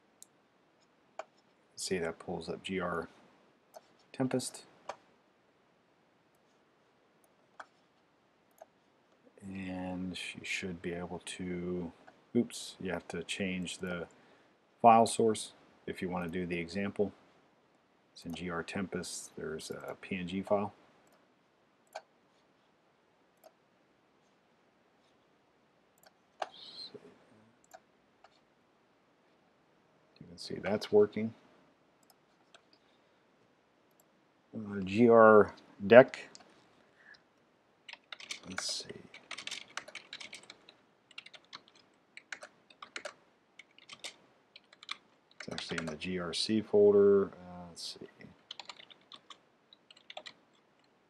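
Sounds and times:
computer mouse clicking: 3.7 - 3.9, 21.8 - 22.1, 37.9 - 46.0, 48.5 - 50.9.

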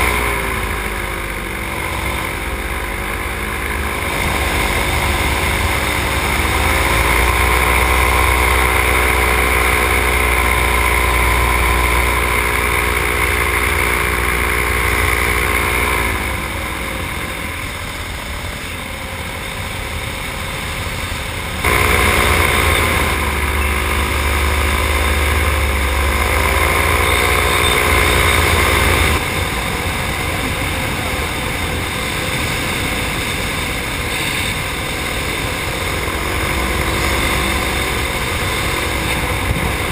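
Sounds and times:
paramotor engine and propeller: 0.0 - 39.9
wind rumble on microphone: 24.6 - 39.9.

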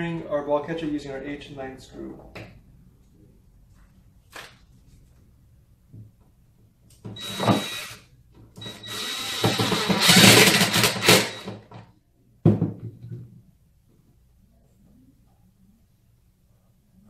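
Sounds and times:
cordless power driver running: 8.6 - 11.5.

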